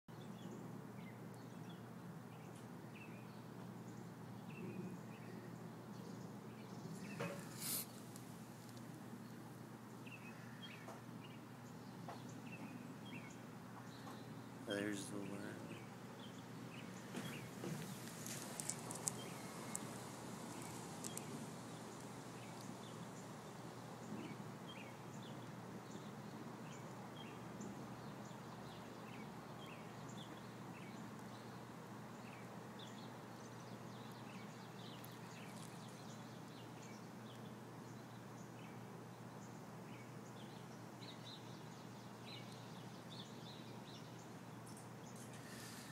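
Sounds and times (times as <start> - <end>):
outdoor background noise: 0.1 - 45.9
bird chirps: 10.0 - 23.3, 32.2 - 38.8
sharp clicks: 20.5 - 21.3.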